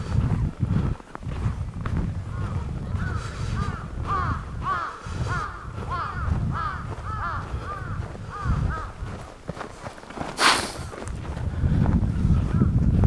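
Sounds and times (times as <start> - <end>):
crows cawing: 2.3 - 9.0.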